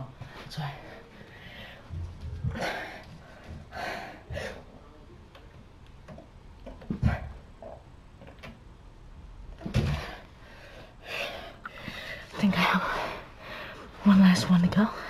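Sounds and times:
strained breaths: 9.7s - 14.1s.

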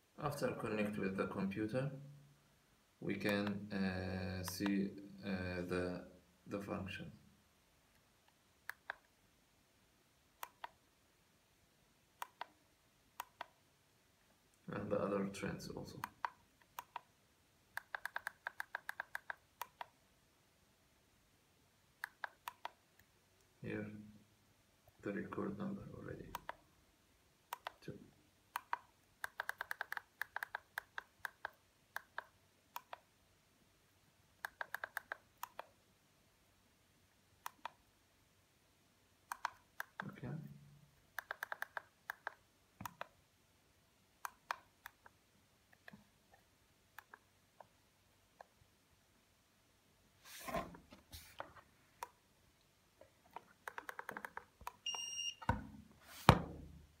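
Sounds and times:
device rubbing from handling: 50.2s - 51.6s
push buttons clicking: 53.3s - 55.8s
high electronic beep: 54.9s - 55.5s.

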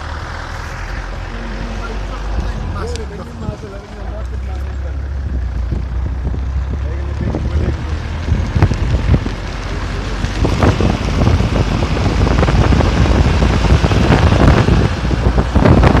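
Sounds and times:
tyres rumbling on dirt road: 0.0s - 16.0s
wind buffeting microphone: 5.0s - 16.0s.

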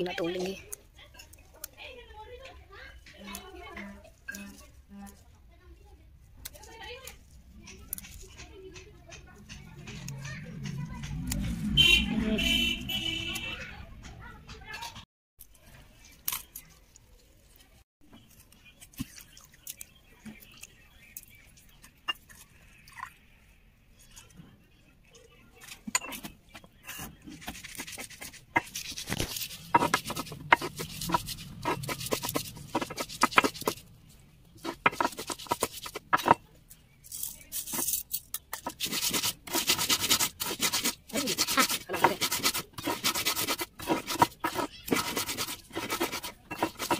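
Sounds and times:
grinding stone scraping on stone slab: 25.9s - 33.8s, 34.6s - 36.4s, 38.5s - 46.9s.

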